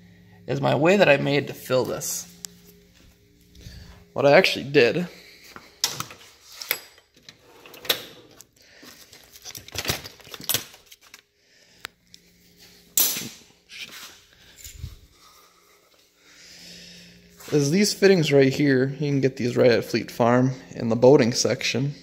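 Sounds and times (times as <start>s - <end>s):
tool drawer opening: 5.8s - 8.4s
loose parts clinking and clattering: 9.1s - 11.2s.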